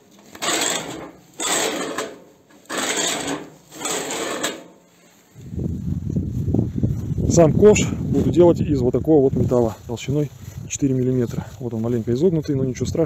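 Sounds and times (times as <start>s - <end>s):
ball bearings rolling on steel pipe: 0.2s - 4.9s.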